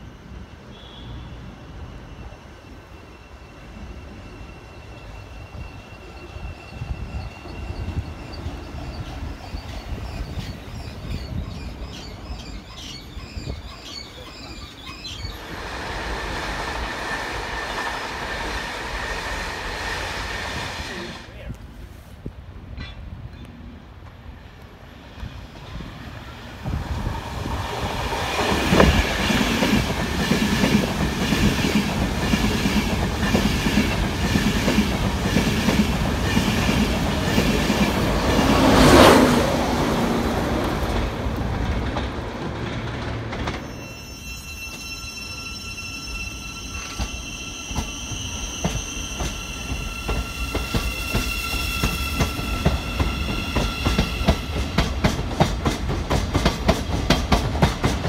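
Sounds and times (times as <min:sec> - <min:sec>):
train wheels clattering: 0:46.8 - 0:58.0.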